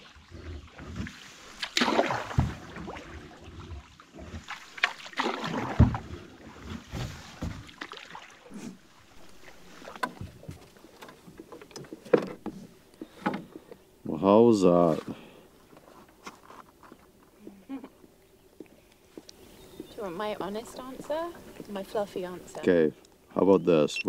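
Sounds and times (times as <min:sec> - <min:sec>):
paddle strokes swishing through water: 0:00.0 - 0:13.8
knocks against canoe: 0:01.7 - 0:02.7, 0:04.4 - 0:07.9, 0:09.8 - 0:13.7.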